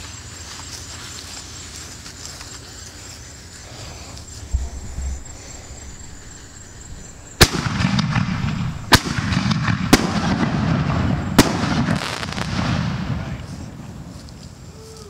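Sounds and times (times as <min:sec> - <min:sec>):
fireworks crackling and rumbling: 0:03.4 - 0:14.7
firework shells booming: 0:03.6 - 0:13.4.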